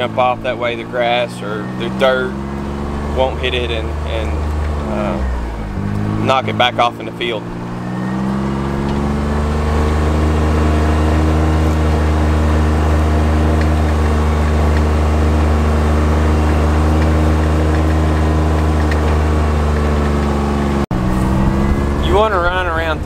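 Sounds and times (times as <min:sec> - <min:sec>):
utility vehicle engine running: 0:00.0 - 0:23.0.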